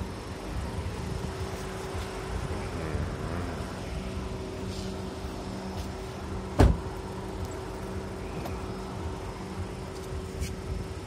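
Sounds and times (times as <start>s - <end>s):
car engine humming: 0.0s - 11.0s
loud thump: 6.6s - 6.9s.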